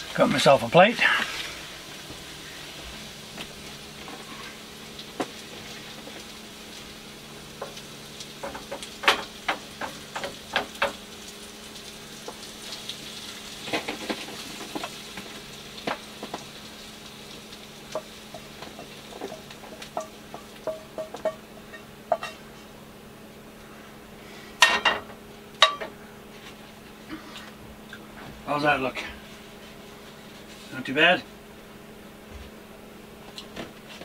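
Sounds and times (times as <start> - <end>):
food sizzling in a frying pan: 0.0 - 22.8
steady low hum: 0.0 - 34.0
utensil scraping a pan: 4.0 - 4.6
utensil clacking against pan: 8.4 - 11.0, 17.9 - 22.4.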